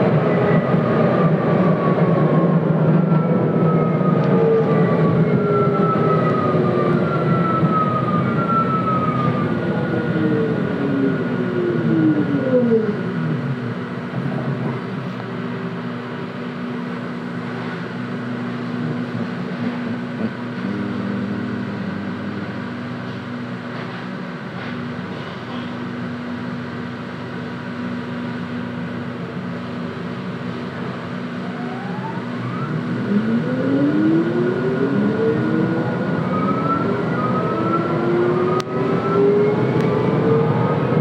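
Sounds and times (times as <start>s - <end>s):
tram motors whining: 0.0s - 41.0s.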